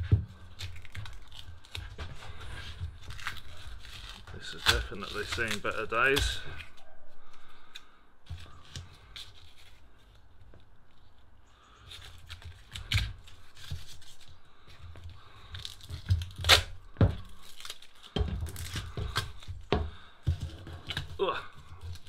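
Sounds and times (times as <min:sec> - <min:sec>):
duct tape ripping off: 0:00.5 - 0:06.8, 0:11.9 - 0:14.4, 0:15.6 - 0:19.5.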